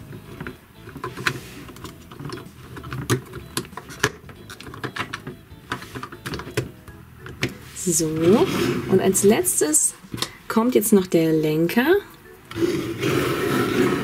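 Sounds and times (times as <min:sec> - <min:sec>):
plastic toy parts clicking: 0:00.2 - 0:07.6.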